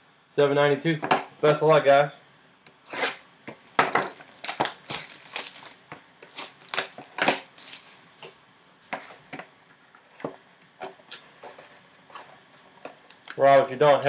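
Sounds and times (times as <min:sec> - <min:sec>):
cellophane crackling and tearing: 0:03.6 - 0:08.0.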